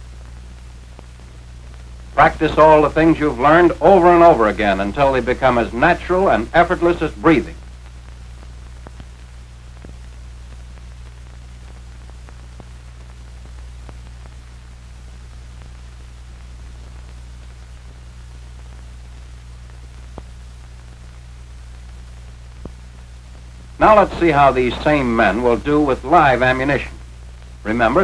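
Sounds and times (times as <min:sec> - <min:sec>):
faint crackles: 0:00.0 - 0:28.0
film soundtrack hum and hiss: 0:00.0 - 0:28.0.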